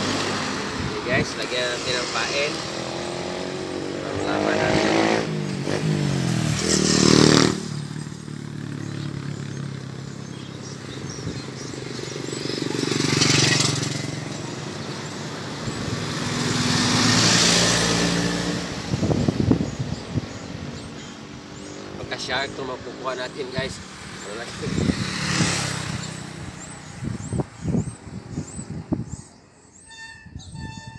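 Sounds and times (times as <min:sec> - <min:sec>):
vehicles driving past: 0:00.0 - 0:29.9.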